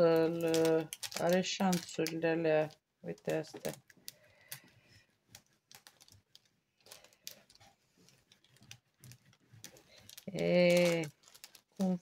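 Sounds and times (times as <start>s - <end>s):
plastic film crinkling: 0.0s - 12.0s.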